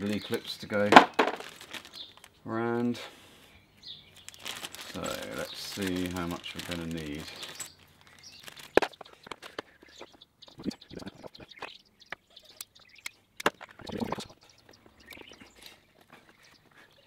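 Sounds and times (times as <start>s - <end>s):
rustle: 0.0s - 9.6s.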